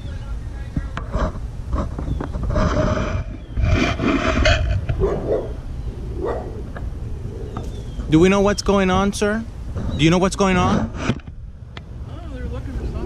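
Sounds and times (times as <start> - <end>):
wind rumbling on microphone: 0.0 - 13.0
large dog barking: 4.9 - 6.7.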